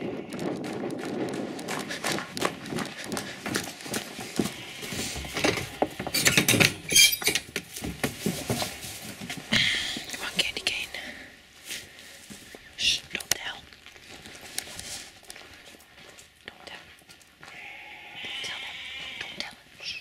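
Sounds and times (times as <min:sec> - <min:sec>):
running footsteps on straw: 0:00.0 - 0:06.2, 0:07.7 - 0:10.4, 0:11.4 - 0:12.8, 0:13.6 - 0:19.2
wire crate door rattling: 0:05.3 - 0:07.8.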